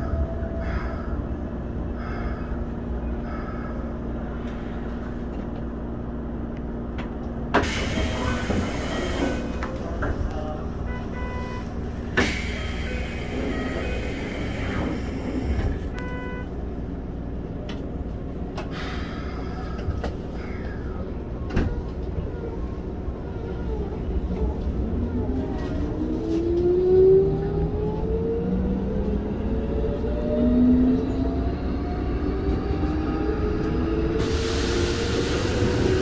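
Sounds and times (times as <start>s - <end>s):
train rumble: 0.0s - 36.0s
train tunnel rush: 0.0s - 36.0s
train clunks: 6.9s - 10.5s, 12.0s - 16.2s.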